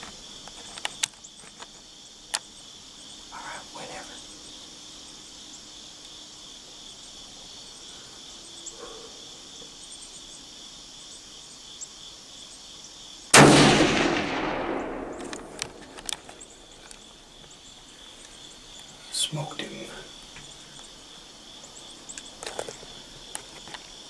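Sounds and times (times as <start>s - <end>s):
insect chirring: 0.0s - 24.0s
gunshot echoing: 13.3s - 16.2s.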